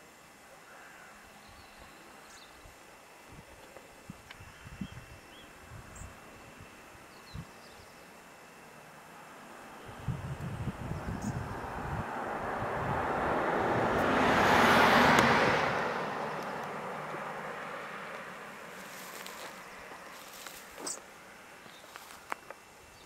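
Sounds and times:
vehicle driving past: 0:10.8 - 0:20.6.

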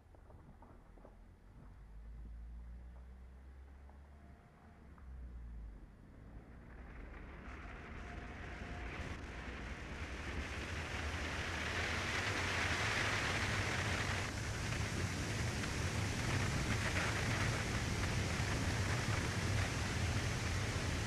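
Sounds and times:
low road rumble: 0:00.0 - 0:21.0
tyre and wind noise: 0:06.8 - 0:21.0.

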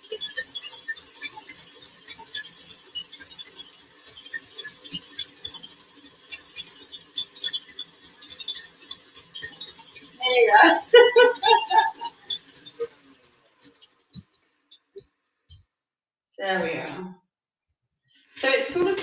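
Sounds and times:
whisk ticking and splattering: 0:00.1 - 0:15.7.

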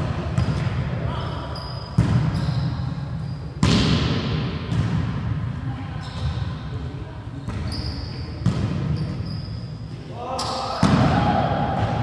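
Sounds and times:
background noise: 0:00.0 - 0:12.0.

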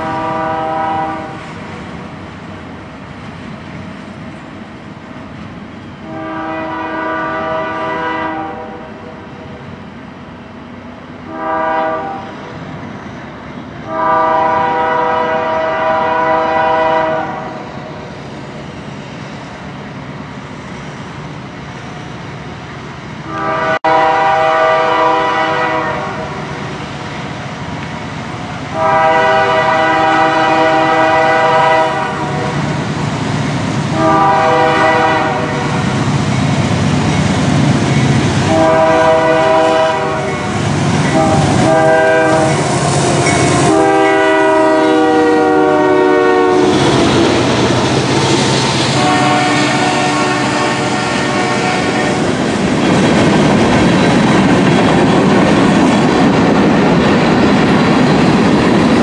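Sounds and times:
locomotive air horn blasts: 0:00.0 - 0:01.4, 0:06.0 - 0:09.0, 0:11.3 - 0:12.3, 0:13.8 - 0:17.6, 0:23.3 - 0:26.4, 0:28.7 - 0:32.6, 0:33.9 - 0:35.9, 0:38.5 - 0:47.1, 0:48.9 - 0:52.3
train rumbling past: 0:00.0 - 0:59.0.

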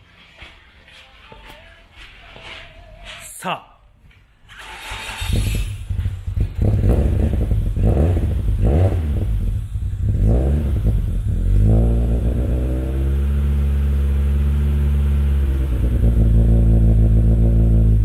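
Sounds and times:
car engine revving and idling: 0:04.8 - 0:18.0.

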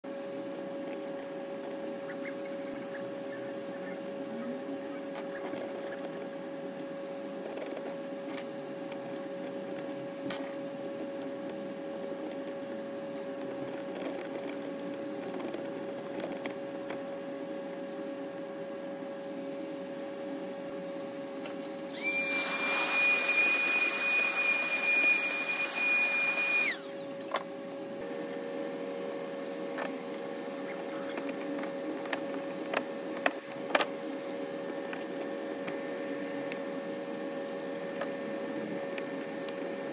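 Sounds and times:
printer fan humming: 0:00.1 - 0:39.9
electric motor high whine: 0:21.8 - 0:39.9.

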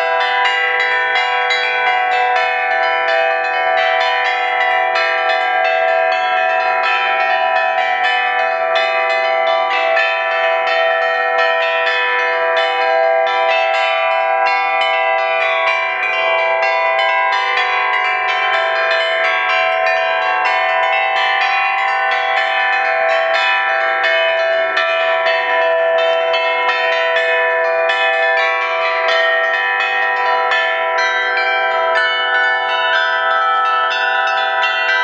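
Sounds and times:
metal plate bells pealing: 0:00.0 - 0:35.0.

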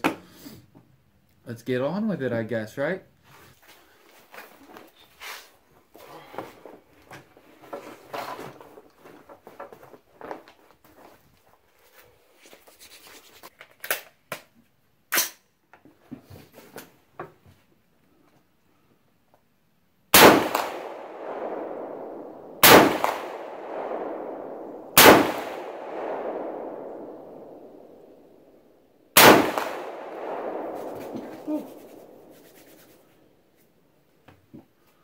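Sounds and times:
rifle shots with rolling echo: 0:20.1 - 0:32.4.

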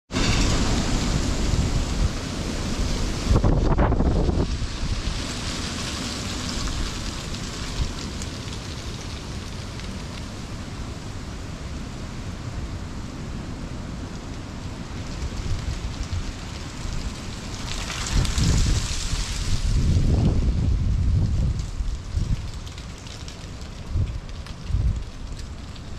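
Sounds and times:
wind buffeting microphone: 0:00.1 - 0:05.6, 0:14.7 - 0:25.9
rain: 0:00.1 - 0:25.9.

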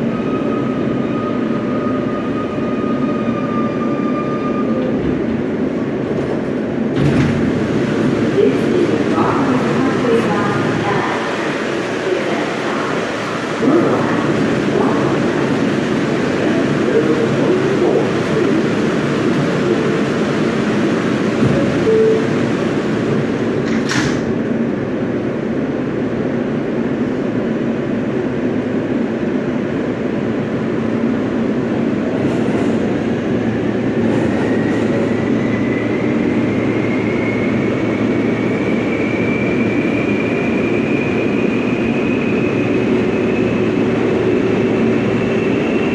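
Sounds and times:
subway train rumble: 0:00.0 - 0:45.9.

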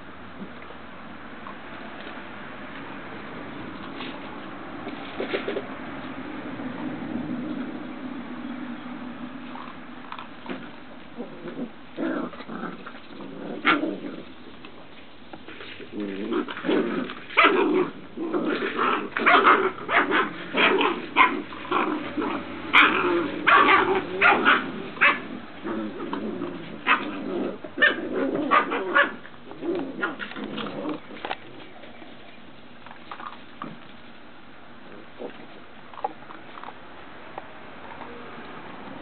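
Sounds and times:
puppies barking and growling: 0:09.2 - 0:32.2.

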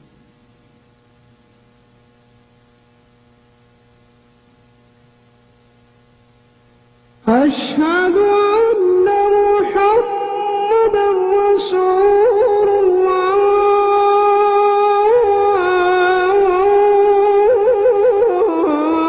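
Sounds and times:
faint electrical hum: 0:00.0 - 0:19.0
amplified call to prayer chant: 0:07.2 - 0:19.0.

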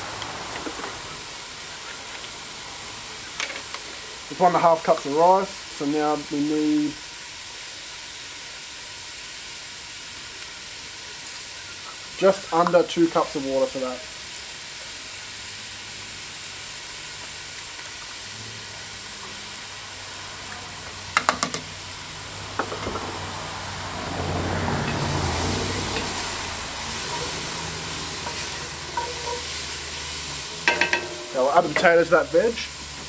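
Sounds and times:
vegetables sizzling in oil: 0:00.0 - 0:33.0
vegetables stirred in pot: 0:24.8 - 0:33.0.

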